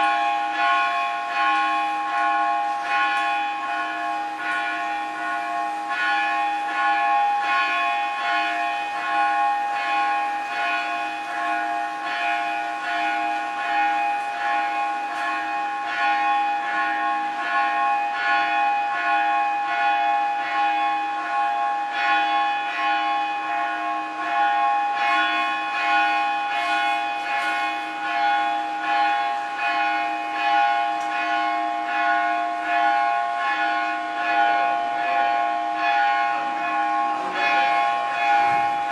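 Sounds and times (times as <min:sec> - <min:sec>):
temple bells ringing: 0:00.0 - 0:38.9.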